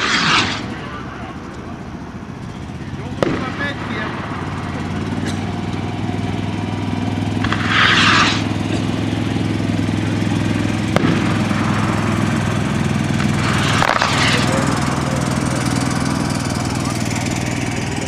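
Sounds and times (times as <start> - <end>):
rocket launch hiss: 0.0 - 0.9, 7.4 - 8.7, 10.9 - 16.4
sharp crack: 0.0 - 1.6, 3.0 - 6.2, 6.9 - 18.0
engine droning: 0.0 - 18.0.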